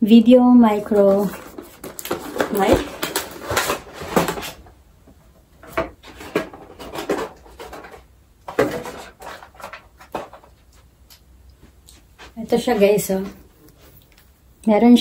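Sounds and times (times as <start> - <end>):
packaging rustling and crinkling: 0.6 - 4.7, 5.6 - 10.9.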